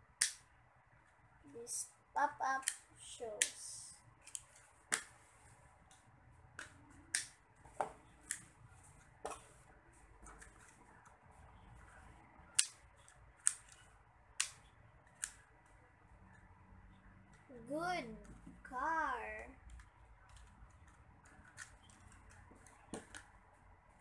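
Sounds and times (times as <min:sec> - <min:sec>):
plastic toy clicks and snaps: 0:00.2 - 0:00.5, 0:02.6 - 0:03.6, 0:06.6 - 0:07.4, 0:12.5 - 0:13.8, 0:14.4 - 0:15.4.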